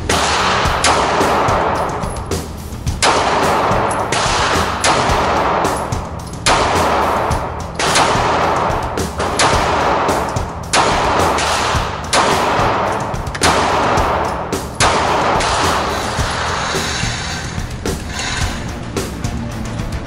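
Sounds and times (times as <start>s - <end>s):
pistol shots echoing: 0.0s - 2.1s, 3.0s - 16.6s
rock music: 0.0s - 20.0s.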